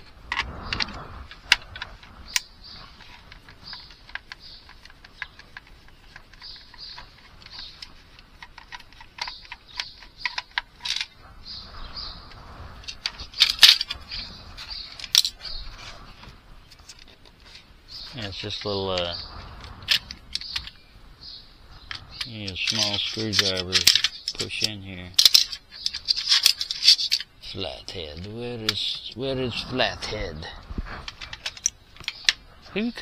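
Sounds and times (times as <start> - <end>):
plastic casing being handled: 0.0 - 11.2, 21.8 - 27.3, 31.0 - 32.4.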